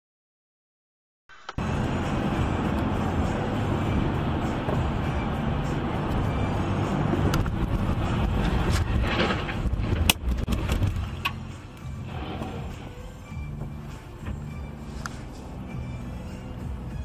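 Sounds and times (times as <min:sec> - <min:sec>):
car tyre noise on wet road: 0:01.6 - 0:13.9.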